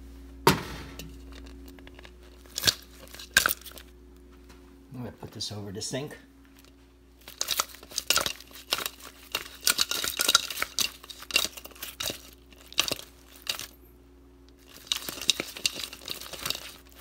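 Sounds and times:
chicken wings tossed in a bowl: 1.0 - 3.9, 7.2 - 13.8, 14.6 - 17.0.

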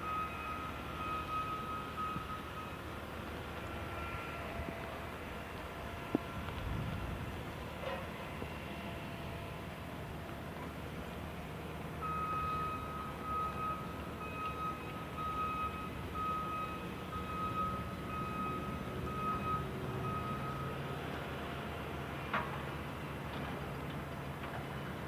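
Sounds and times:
reversing alarm beeping: 0.0 - 4.8, 12.0 - 20.9
diesel engines humming: 0.0 - 25.0.

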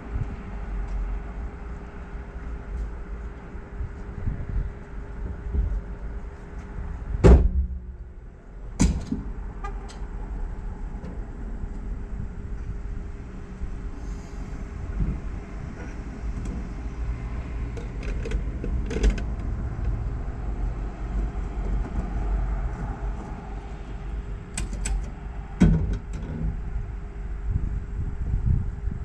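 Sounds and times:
loud thump: 7.2 - 8.0.

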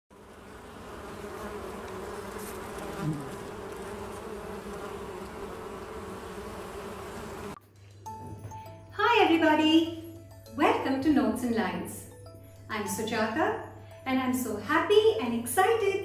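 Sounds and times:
bee buzzing: 0.1 - 7.6.

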